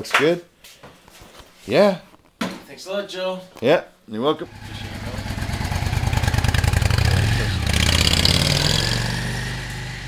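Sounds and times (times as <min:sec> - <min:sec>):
motorcycle riding off: 0:04.4 - 0:10.0.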